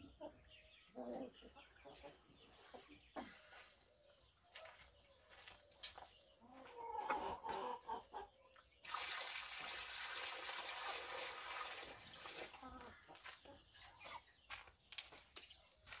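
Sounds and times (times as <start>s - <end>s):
hens clucking: 0.0s - 8.8s, 12.1s - 16.0s
water pouring from bucket: 8.8s - 12.6s.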